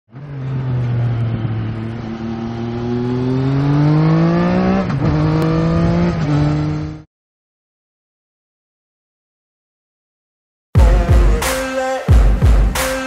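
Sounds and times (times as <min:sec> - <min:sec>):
motorcycle engine accelerating: 0:00.1 - 0:07.1.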